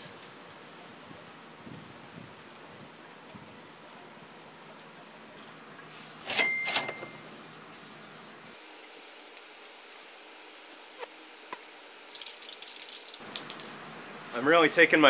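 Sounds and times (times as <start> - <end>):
aerosol spray can hissing: 5.9 - 6.3, 7.1 - 13.2.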